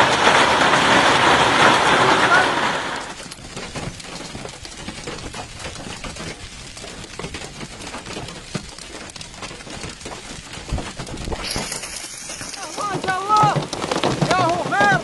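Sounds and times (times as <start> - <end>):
hailstones striking asphalt: 0.0 - 15.0.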